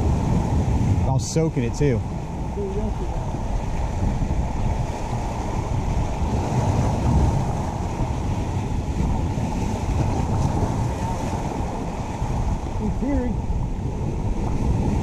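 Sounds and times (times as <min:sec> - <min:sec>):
surf breaking over rocks: 0:00.0 - 0:15.0
wind buffeting microphone: 0:00.0 - 0:15.0.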